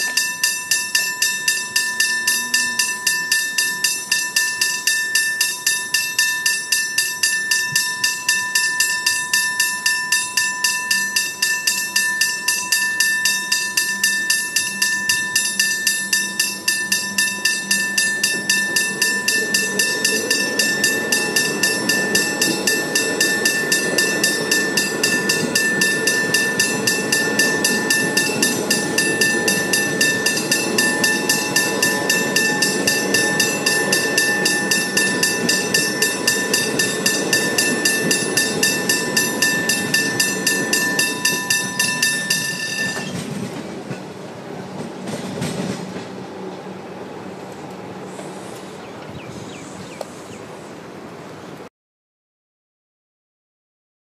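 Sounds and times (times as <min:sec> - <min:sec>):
level crossing bell ringing: 0:00.0 - 0:43.2
train rumbling past: 0:00.0 - 0:51.6.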